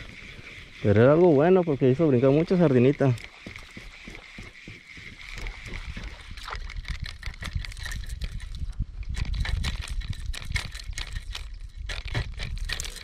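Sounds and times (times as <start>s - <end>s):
small clicks and knocks: 3.0s - 13.0s.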